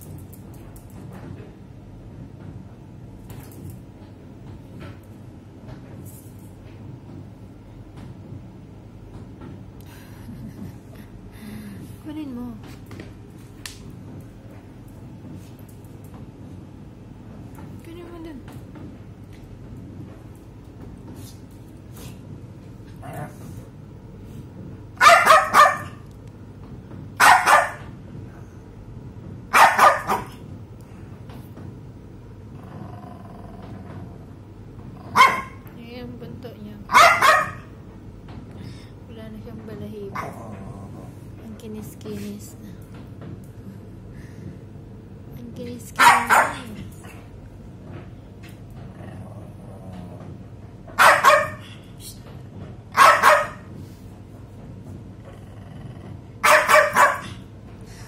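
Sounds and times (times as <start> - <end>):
small dog barking: 25.0 - 26.0, 27.2 - 27.8, 29.5 - 30.4, 35.1 - 35.6, 36.9 - 37.7, 46.0 - 46.7, 51.0 - 51.6, 53.0 - 53.7, 56.4 - 57.4.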